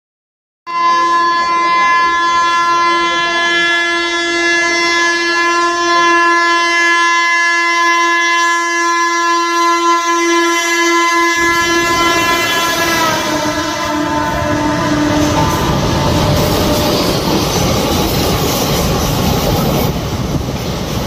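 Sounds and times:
train horn blast: 0:00.7 - 0:17.7
moving train rumble: 0:09.4 - 0:21.0.

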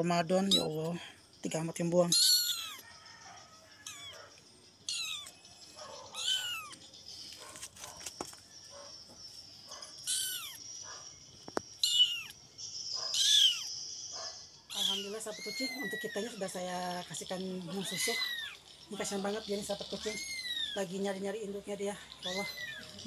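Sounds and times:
kitten mewing: 0:06.1 - 0:06.8, 0:11.8 - 0:12.3.

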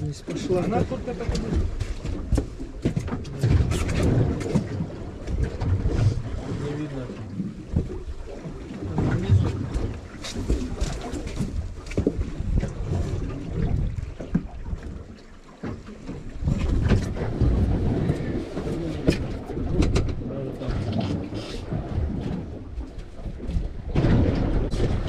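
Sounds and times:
wind buffeting microphone: 0:00.0 - 0:15.2, 0:16.2 - 0:25.0
water against hull: 0:00.0 - 0:25.0
knocks and clicks of gear: 0:19.1 - 0:20.2.

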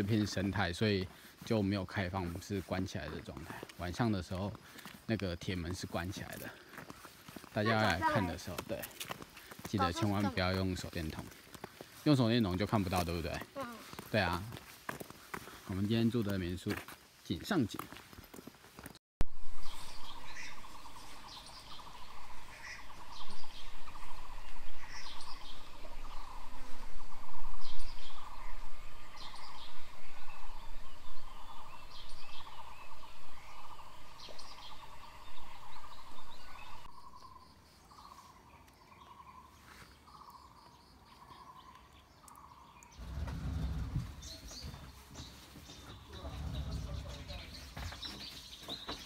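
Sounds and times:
birds chirping and calling: 0:00.0 - 0:14.6, 0:19.6 - 0:49.0.

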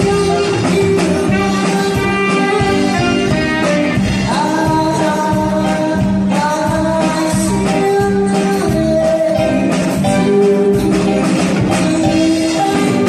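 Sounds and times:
woman singing into microphone: 0:00.0 - 0:03.5, 0:04.2 - 0:13.0
amplified backing music with guitar: 0:00.0 - 0:13.0.

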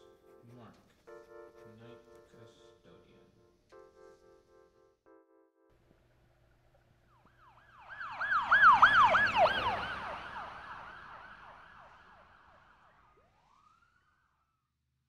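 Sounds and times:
emergency vehicle siren yelping: 0:07.0 - 0:14.2.

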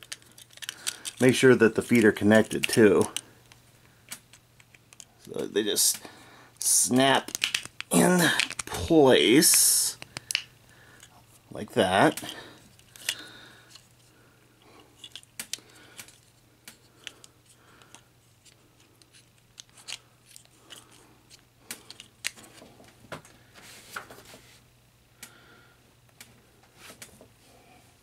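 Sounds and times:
plastic toy parts clicking: 0:00.0 - 0:03.2, 0:04.1 - 0:05.3, 0:07.3 - 0:08.7.

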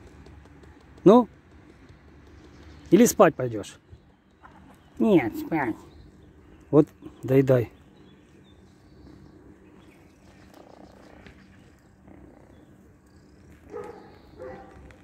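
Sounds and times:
cat purring: 0:08.8 - 0:15.0.

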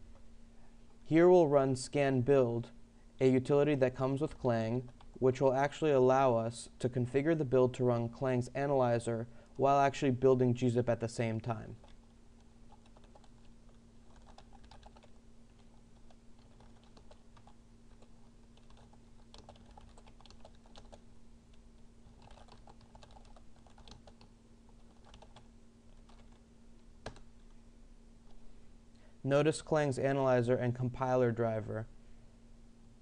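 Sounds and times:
faint steady hum: 0:00.0 - 0:33.0
typing on computer keyboard: 0:12.7 - 0:13.5, 0:14.1 - 0:26.4, 0:27.0 - 0:27.3.

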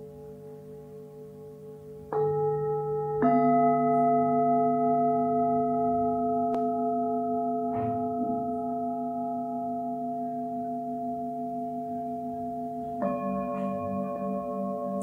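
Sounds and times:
singing bowls ringing: 0:02.1 - 0:15.0
singing bowl struck: 0:12.8 - 0:15.0.

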